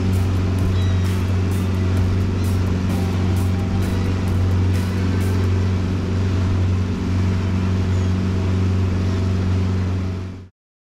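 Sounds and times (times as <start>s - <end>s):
churning wake water: 0.0s - 10.5s
outboard motor droning: 0.0s - 10.5s.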